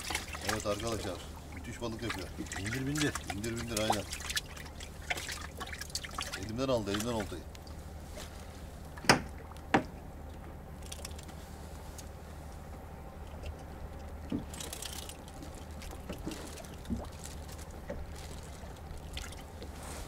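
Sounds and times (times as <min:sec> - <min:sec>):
boat low hum: 0:00.0 - 0:20.0
fishing tackle clicks: 0:10.8 - 0:11.4
fishing line rustle: 0:10.8 - 0:12.6, 0:13.4 - 0:20.0.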